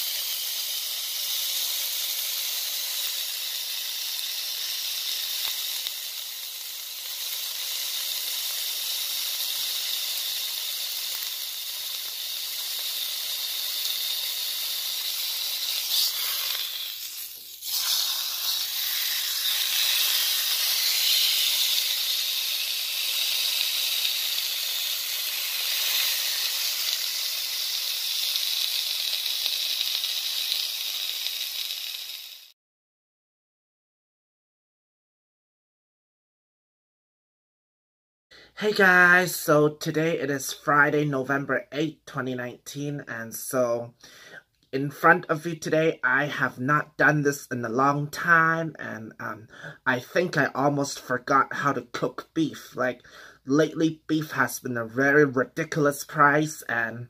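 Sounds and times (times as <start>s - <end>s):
steak sizzling in a frying pan: 0.0s - 32.5s.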